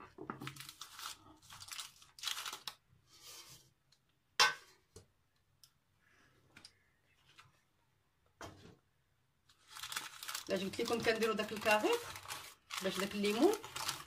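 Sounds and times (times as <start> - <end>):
baking paper rustling: 0.4 - 3.6, 9.5 - 14.0.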